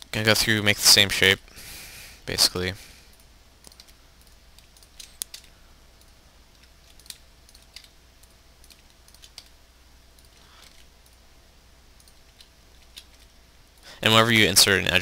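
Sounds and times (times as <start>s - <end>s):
low electrical hum: 0.0s - 15.0s
mouse and keyboard clicks: 3.2s - 9.6s, 10.2s - 11.2s, 12.0s - 13.3s.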